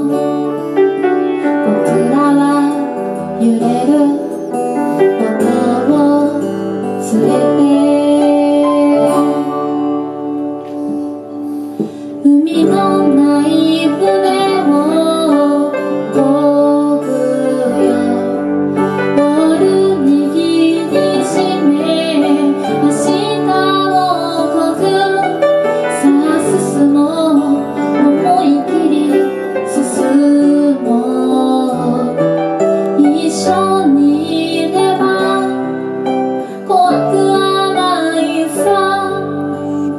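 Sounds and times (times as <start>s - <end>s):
woman singing: 0.0s - 10.4s, 11.8s - 39.9s
acoustic guitar: 0.0s - 39.9s
grand piano: 0.0s - 39.9s.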